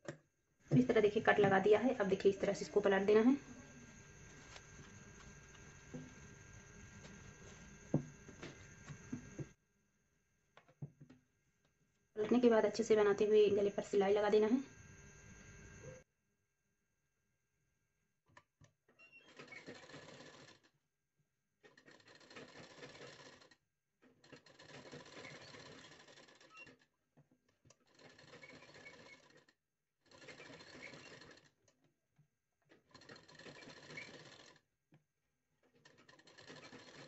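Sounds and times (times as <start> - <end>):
sewing machine stitching: 19.0 - 20.7, 21.6 - 26.9, 27.7 - 31.6, 32.7 - 34.6, 35.6 - 37.0.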